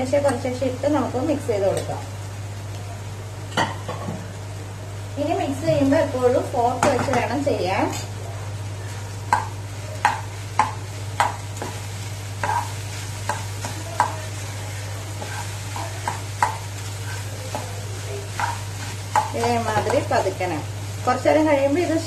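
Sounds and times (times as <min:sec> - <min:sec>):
fork scraping and knocking pan: 0:12.4 - 0:12.7, 0:18.4 - 0:19.9.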